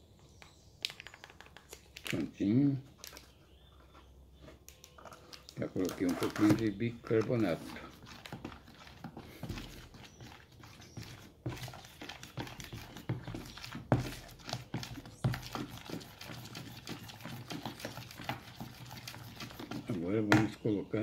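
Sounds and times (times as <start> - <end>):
stick tapping and scraping bowl: 5.9 - 20.6.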